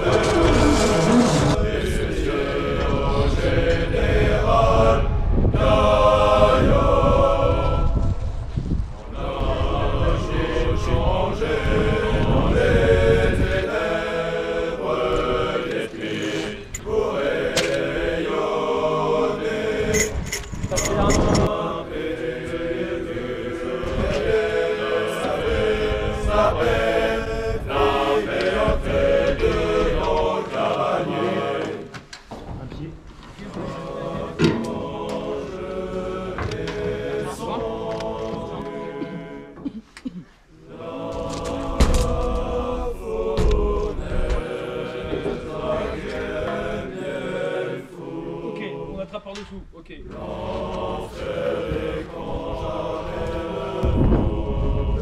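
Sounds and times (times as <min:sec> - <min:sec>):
low rumble: 0:00.0 - 0:13.1
voices chanting in unison: 0:00.0 - 0:32.1, 0:33.3 - 0:55.0.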